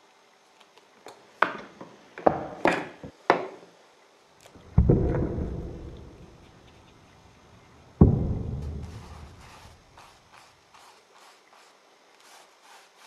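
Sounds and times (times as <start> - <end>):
heavy thud: 4.6 - 6.4, 8.0 - 9.9
low hum: 4.6 - 10.3.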